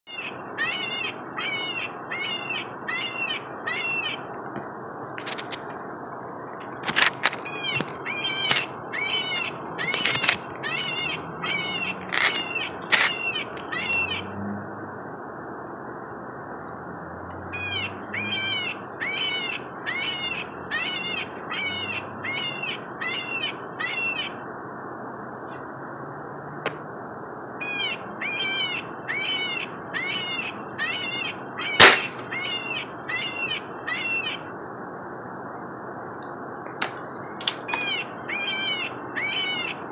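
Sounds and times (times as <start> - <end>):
squirrel alarm barks: 7.2 - 14.4, 17.6 - 24.4, 27.6 - 34.5, 37.5 - 39.9
loud sharp crack: 31.8 - 32.3.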